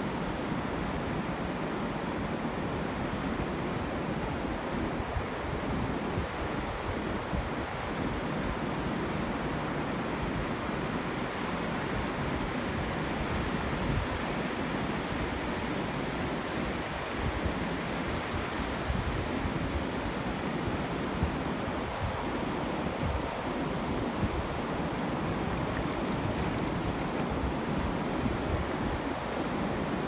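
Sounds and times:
surf washing over sand: 0:10.5 - 0:30.0
wind buffeting microphone: 0:21.2 - 0:30.0.

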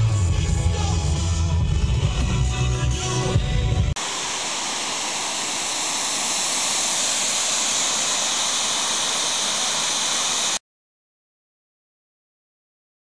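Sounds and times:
water rushing over spillway: 0:04.0 - 0:10.6.

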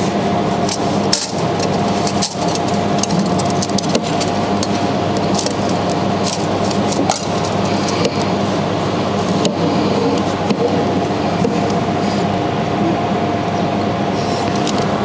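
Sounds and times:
machinery humming: 0:00.0 - 0:15.0
sharp clicks and clatter: 0:00.6 - 0:08.3.

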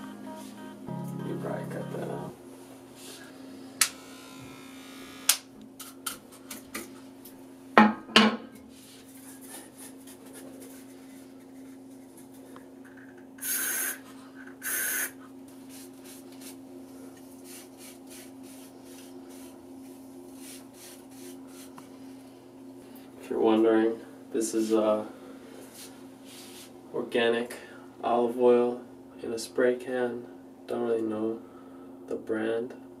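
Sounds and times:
low hum: 0:00.0 - 0:05.3
spray can hissing: 0:13.4 - 0:14.0, 0:14.6 - 0:15.1.

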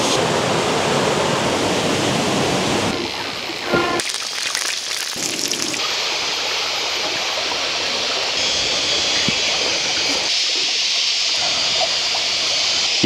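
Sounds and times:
forest stream babbling: 0:04.0 - 0:13.0.

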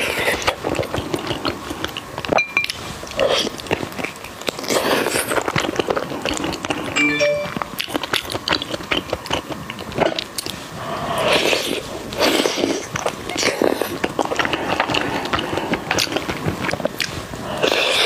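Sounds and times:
biting and chewing food: 0:00.0 - 0:18.0.

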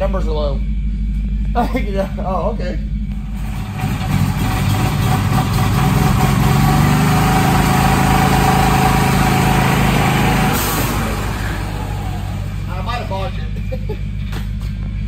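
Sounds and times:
golf cart on spinning dyno rollers: 0:03.2 - 0:13.4.

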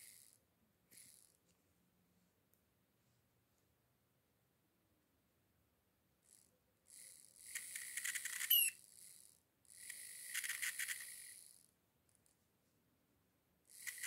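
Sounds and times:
small motor buzzing: 0:00.0 - 0:01.4, 0:06.2 - 0:11.7, 0:13.7 - 0:14.0
motor squeak: 0:07.6 - 0:08.8.

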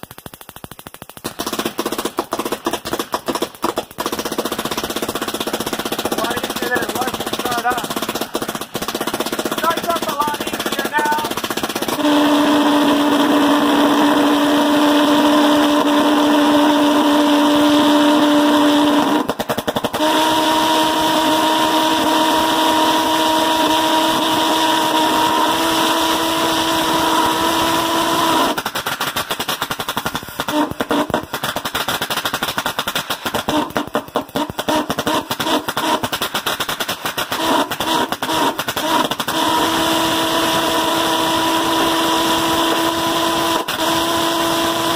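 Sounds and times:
pulse jet sputtering pops: 0:00.0 - 0:44.9
pulse jet engine buzzing drone: 0:06.2 - 0:19.3, 0:19.9 - 0:28.6, 0:37.4 - 0:44.9.

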